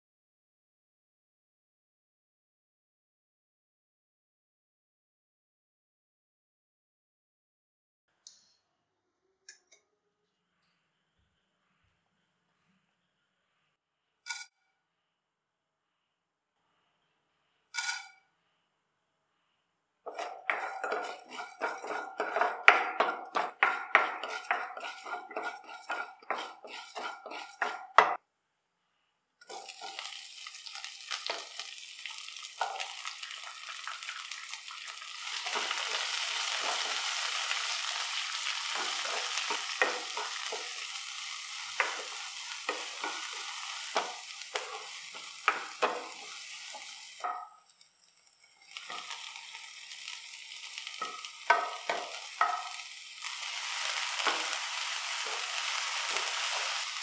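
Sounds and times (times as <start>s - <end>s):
spatula scraping frying pan: 17.8s - 18.2s, 20.1s - 28.2s, 29.5s - 47.5s, 48.4s - 57.0s
onion and garlic sizzling: 20.1s - 28.2s, 29.4s - 57.0s.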